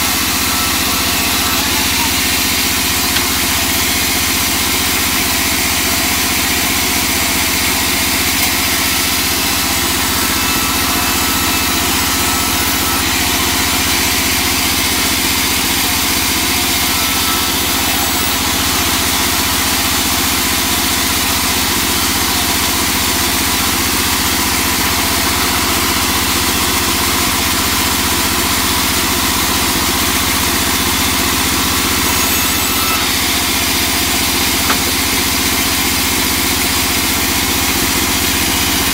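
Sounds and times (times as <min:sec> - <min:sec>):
band saw ripping a board: 0:30.9 - 0:37.4.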